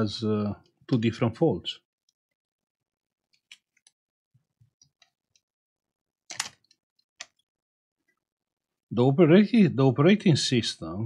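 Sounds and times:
small objects clicking on bench: 0:06.3 - 0:07.4.

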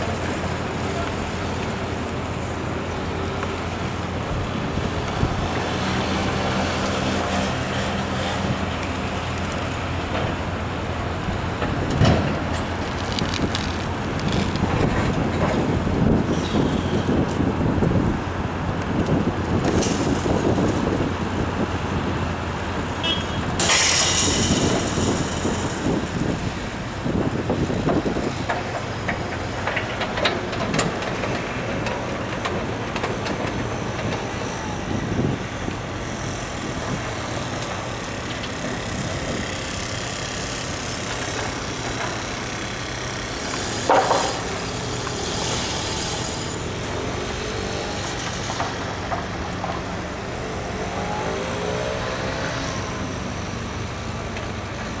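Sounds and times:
heavy machinery engines running: 0:00.0 - 0:55.0
knocks and clanks: 0:11.6 - 0:15.8, 0:43.5 - 0:45.6
loud clatter: 0:23.6 - 0:26.5.

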